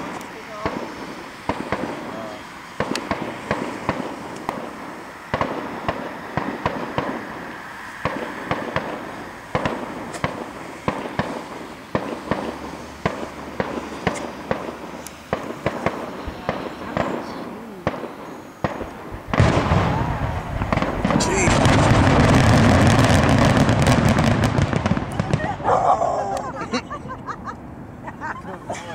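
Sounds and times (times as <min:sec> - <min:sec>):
fireworks bursting with sharp bangs: 0:00.0 - 0:25.7.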